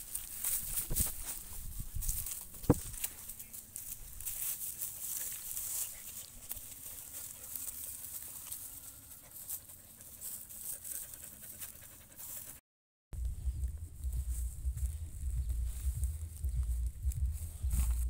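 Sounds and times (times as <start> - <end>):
dogs panting: 4.8 - 12.6.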